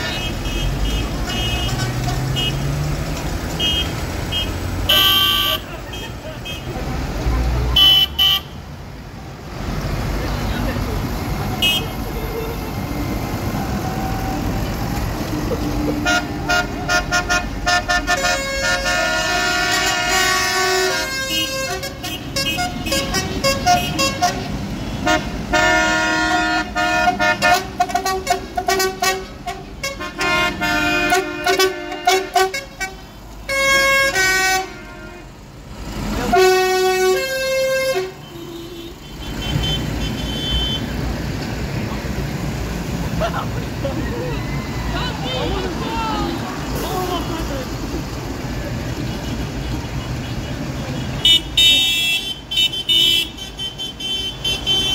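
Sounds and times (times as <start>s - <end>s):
tractor horns tooting: 0.0s - 2.8s, 3.4s - 6.9s, 7.7s - 8.6s, 11.5s - 35.4s, 36.1s - 41.2s, 48.8s - 54.9s
tractor engines running: 0.0s - 54.9s.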